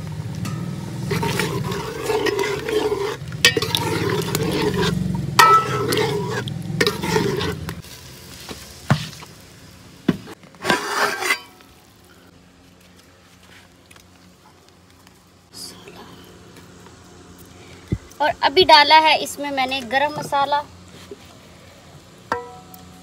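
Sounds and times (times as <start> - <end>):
curry sizzling in pot: 0.0 - 12.0
spoon stirring and scraping pot: 0.5 - 7.8, 10.6 - 11.6.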